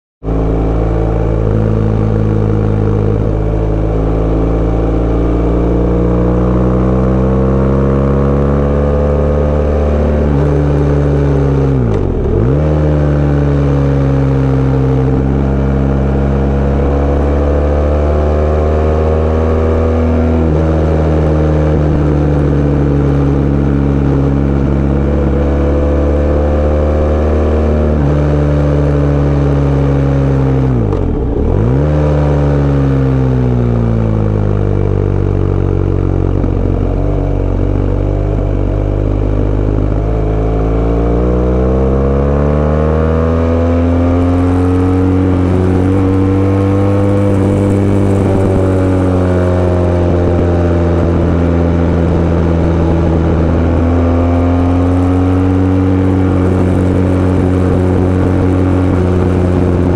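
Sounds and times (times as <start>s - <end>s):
motorcycle engine running: 0.2s - 59.9s.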